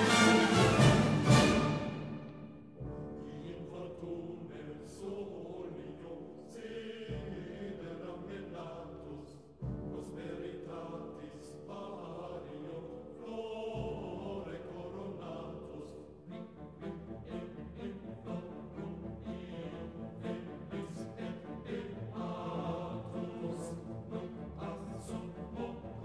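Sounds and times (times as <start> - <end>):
orchestral music: 0.0 - 4.7, 16.2 - 26.0.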